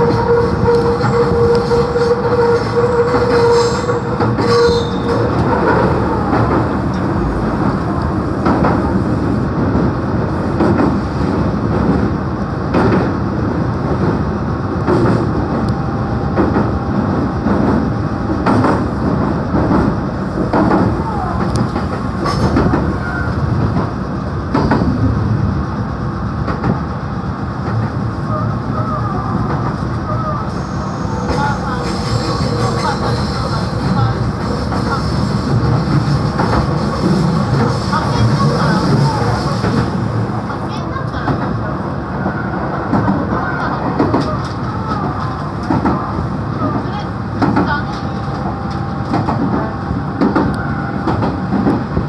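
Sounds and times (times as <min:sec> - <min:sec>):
train rumbling: 0:00.0 - 0:52.0.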